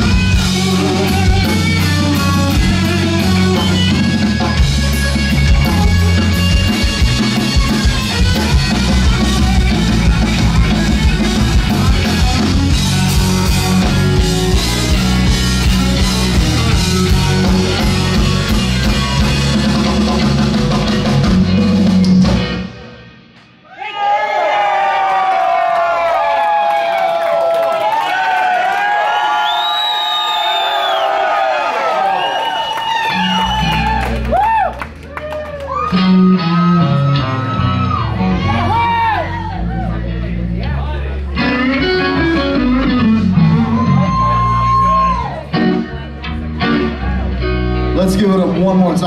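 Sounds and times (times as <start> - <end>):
bass guitar: 0.0 - 23.4, 32.8 - 49.0
drum kit: 0.0 - 23.6
electric guitar: 0.0 - 23.6, 32.8 - 49.0.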